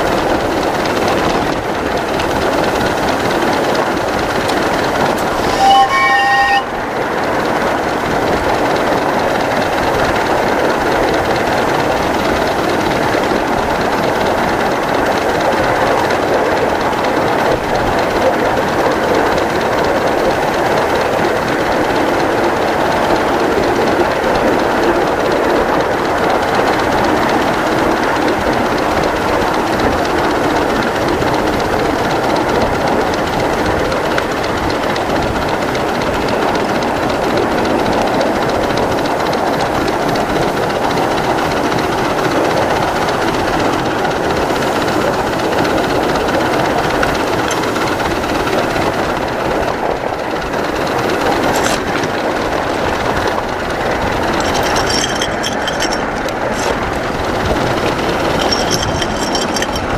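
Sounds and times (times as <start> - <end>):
miniature steam train running: 0.0 - 59.9
wheels clattering on rails: 0.0 - 59.9.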